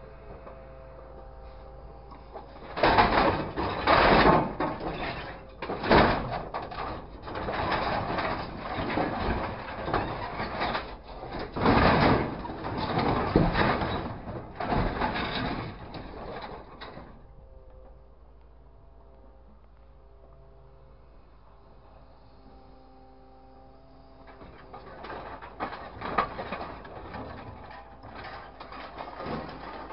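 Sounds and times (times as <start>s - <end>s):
scrap metal rattling and clanking: 2.1s - 17.3s, 24.3s - 29.9s
heavy metal crashes: 2.6s - 17.2s, 24.3s - 29.9s.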